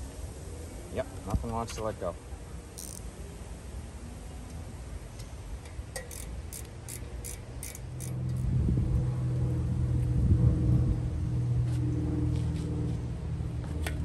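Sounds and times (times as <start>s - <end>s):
wrench clicking on metal: 2.8s - 3.1s, 5.2s - 8.5s.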